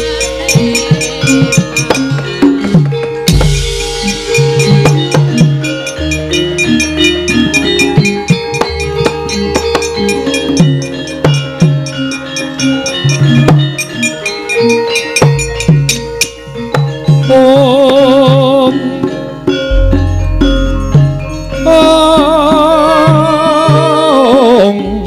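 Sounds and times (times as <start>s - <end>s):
rapid hand-drum strokes: 0.0s - 18.6s, 19.6s - 24.1s
ringing metallophone notes: 0.0s - 25.0s
deep gong tone: 19.7s - 23.4s.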